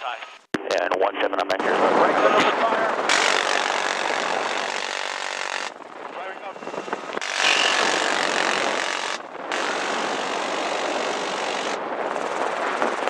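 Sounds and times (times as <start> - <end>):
helicopter engine and rotor noise: 1.7 - 13.0
minigun firing continuous bursts: 2.9 - 13.0.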